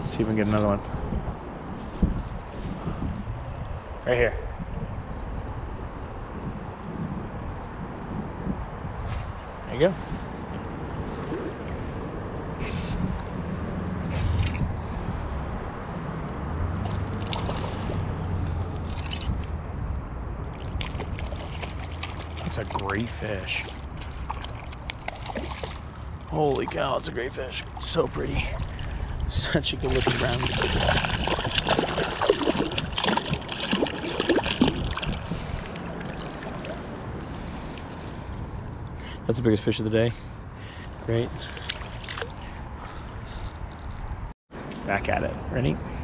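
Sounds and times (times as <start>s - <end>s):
river water rushing and lapping: 10.3s - 39.0s, 40.4s - 43.5s
fish splashing at surface: 16.9s - 18.1s, 20.6s - 26.0s, 29.8s - 37.0s.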